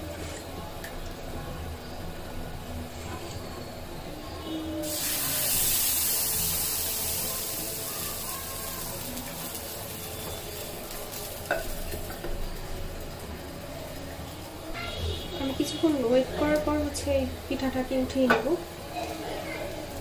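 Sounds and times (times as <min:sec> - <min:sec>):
batter sizzling in hot pan: 0:04.8 - 0:20.0.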